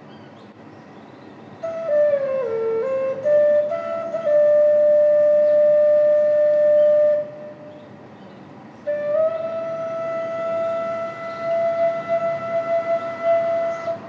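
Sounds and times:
flute melody: 0:01.6 - 0:08.0, 0:08.8 - 0:14.0.

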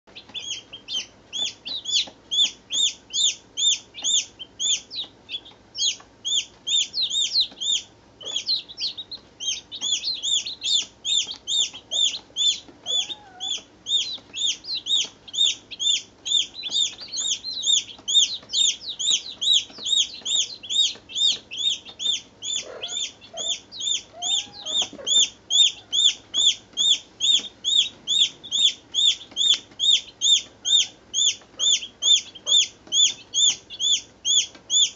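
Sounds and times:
baby chicks peeping: 0:00.1 - 0:34.9.

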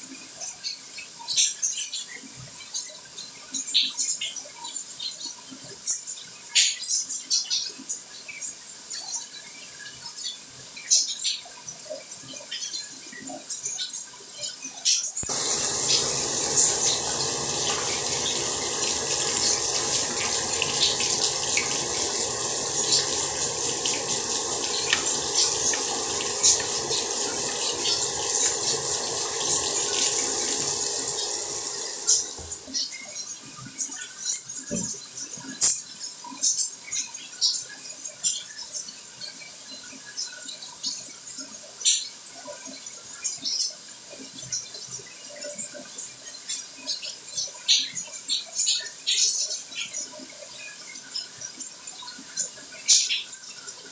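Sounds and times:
water dripping: 0:15.2 - 0:32.7
running water hiss: 0:15.2 - 0:32.9.

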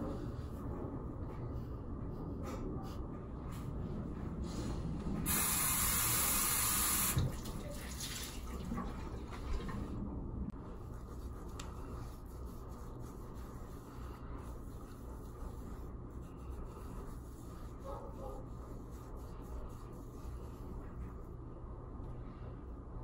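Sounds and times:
low background hum: 0:00.0 - 0:23.0
washcloth rubbing over skin: 0:10.7 - 0:21.3.

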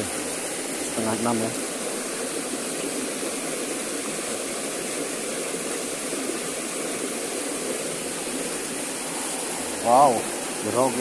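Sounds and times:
river water rushing over cascade: 0:00.0 - 0:11.0.

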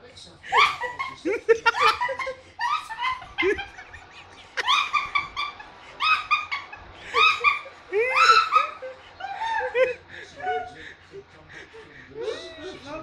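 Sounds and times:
young man squealing laughter: 0:00.5 - 0:10.7.

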